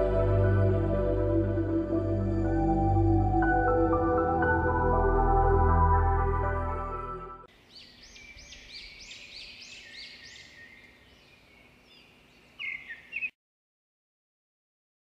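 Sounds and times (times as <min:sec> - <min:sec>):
bird chirping: 0:07.5 - 0:13.4.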